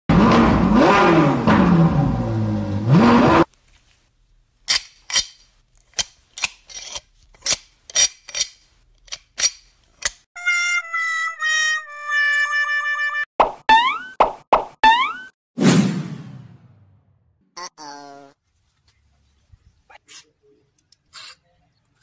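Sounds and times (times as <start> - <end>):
pliers clicking on hose clamp: 4.7 - 10.2.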